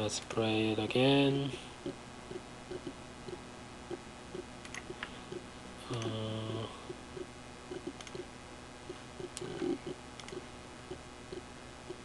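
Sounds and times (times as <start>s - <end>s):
faint room noise: 0.0s - 12.0s
low pitched hum: 0.0s - 12.0s
computer mouse clicking: 4.6s - 5.1s, 7.8s - 8.3s, 9.2s - 10.4s.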